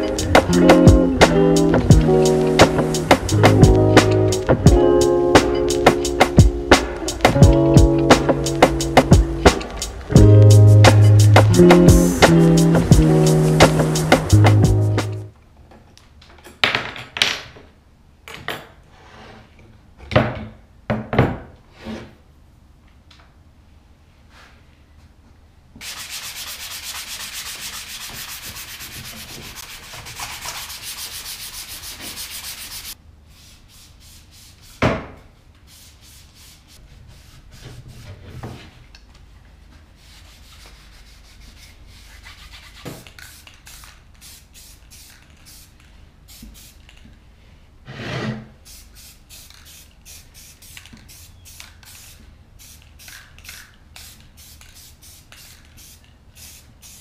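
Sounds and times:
hand sanding wood: 25.8s - 34.8s
wiping strokes: 25.8s - 34.8s.

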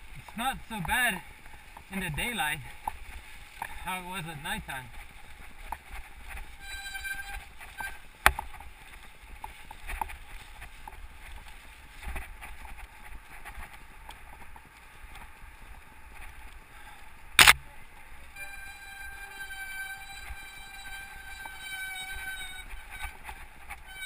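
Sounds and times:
wind and tyres rumble: 0.0s - 24.0s
bike rattles and clacks: 4.7s - 17.2s
sharp crack: 17.4s - 17.7s.

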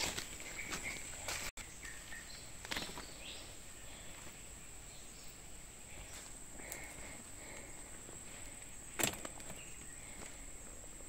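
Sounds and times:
footsteps in dry leaves: 0.0s - 4.1s
bird chirps: 0.0s - 7.6s, 8.4s - 10.8s.

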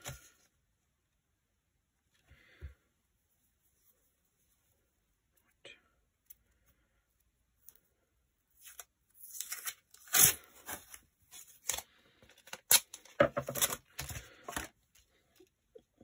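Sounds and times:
adhesive tape pulled and torn: 8.6s - 10.5s.

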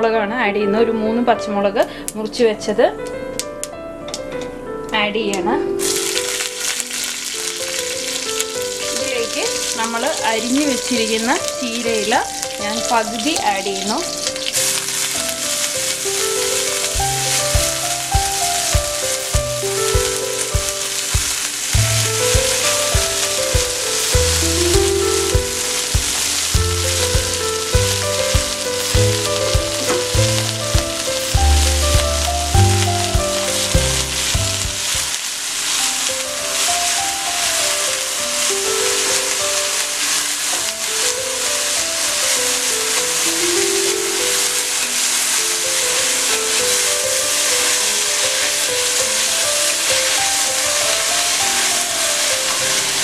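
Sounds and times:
background music: 0.0s - 35.2s
leaves sizzling in hot oil: 5.3s - 53.0s.

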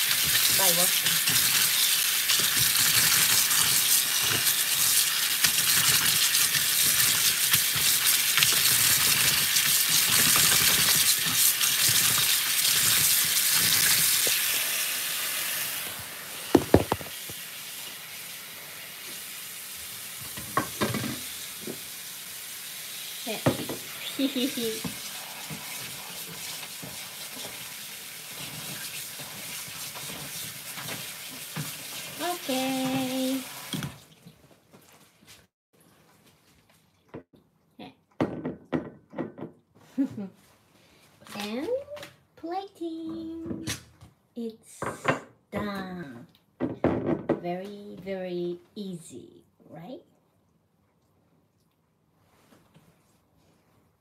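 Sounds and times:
tap water splashing: 16.5s - 17.4s, 29.8s - 34.4s
sharp knocks: 16.6s - 17.1s.

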